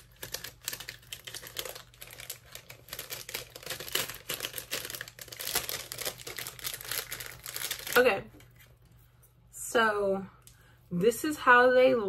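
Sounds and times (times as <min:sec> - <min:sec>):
plastic packaging crinkling: 0:00.0 - 0:08.8.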